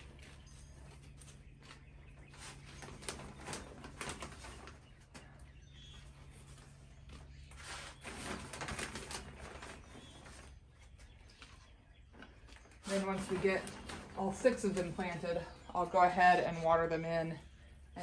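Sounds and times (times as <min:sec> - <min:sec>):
plastic bag rustling: 0:06.7 - 0:10.8.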